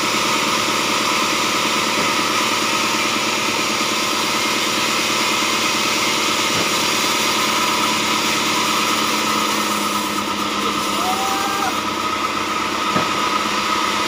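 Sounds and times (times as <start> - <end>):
band saw cutting wood: 0.0 - 14.0.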